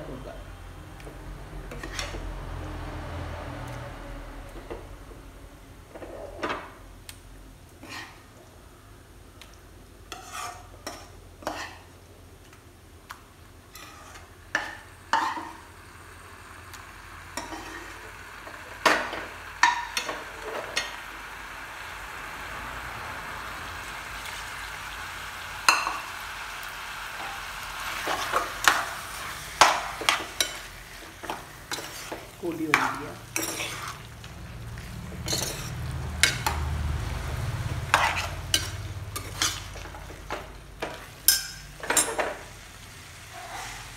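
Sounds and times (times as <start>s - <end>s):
utensil scraping a pan: 1.6s - 2.2s, 10.1s - 11.9s, 13.7s - 15.6s, 27.2s - 34.1s, 34.8s - 36.6s, 37.8s - 42.4s, 43.3s - 43.9s
food sizzling in a pan: 9.6s - 43.9s.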